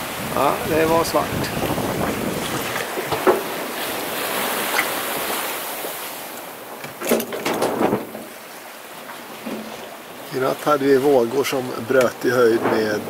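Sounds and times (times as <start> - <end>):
wind noise: 0.0 - 5.4
water rushing past hull: 0.0 - 13.0.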